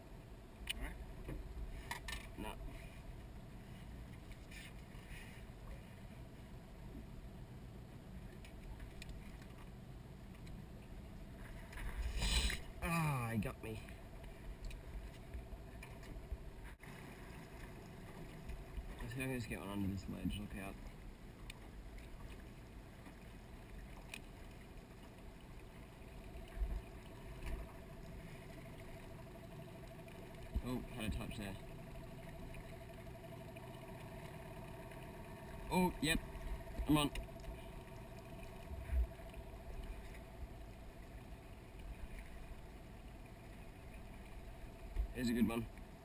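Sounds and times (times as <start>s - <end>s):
thin steady hum: 0.0s - 46.0s
water lapping on boat hull: 0.5s - 46.0s.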